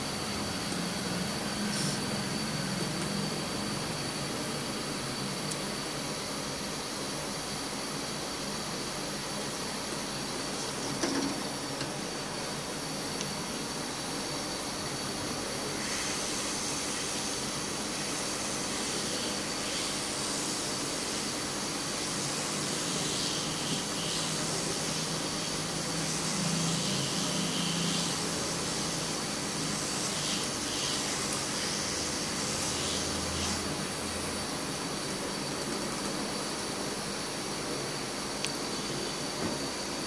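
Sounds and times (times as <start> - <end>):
fan hissing: 0.0 - 40.0.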